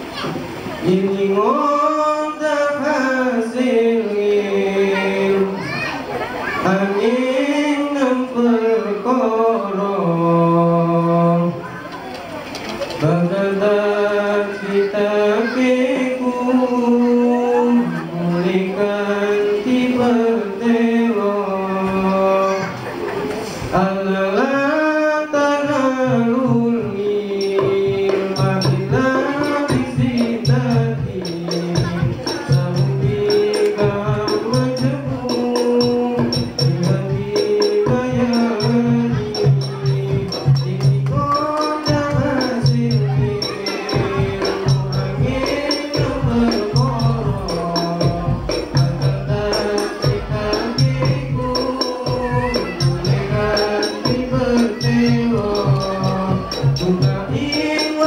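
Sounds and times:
voices singing a chant: 0.0s - 11.7s, 12.9s - 58.0s
jingling tambourine: 27.4s - 58.0s
pulsing low beat: 27.6s - 57.8s.

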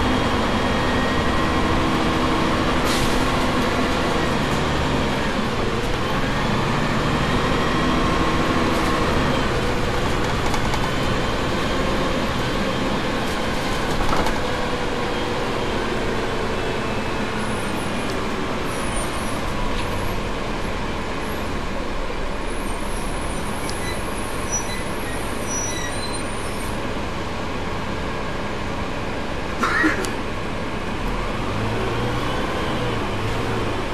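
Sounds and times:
bus diesel engine running: 0.0s - 33.9s
faint high squeals: 22.9s - 26.8s.

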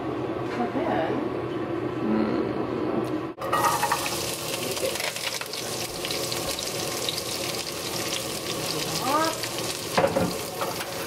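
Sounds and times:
vegetables sizzling in a frying pan: 3.4s - 11.0s.

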